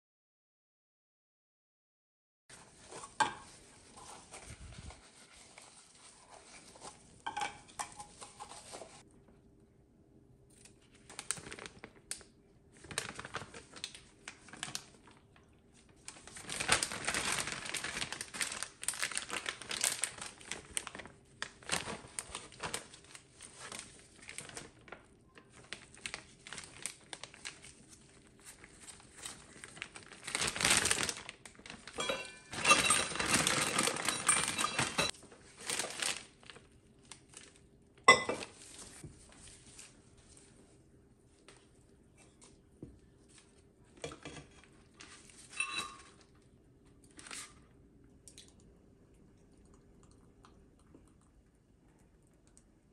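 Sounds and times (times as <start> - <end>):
plastic piping bag crinkling: 10.5 - 37.7.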